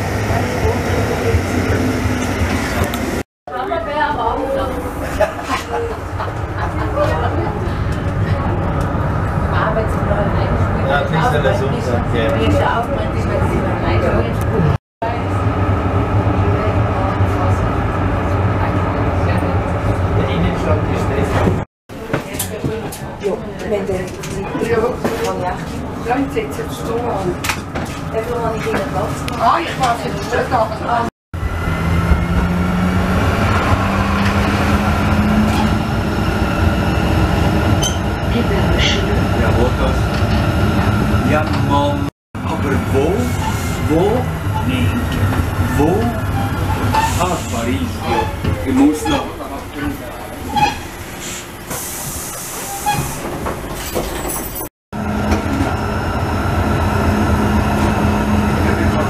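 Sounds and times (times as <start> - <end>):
tram wheels rumbling on rails: 0.0 - 59.0
running gear whine: 31.4 - 50.8, 55.0 - 59.0
hiss: 51.2 - 52.8
low motor hum: 55.0 - 59.0.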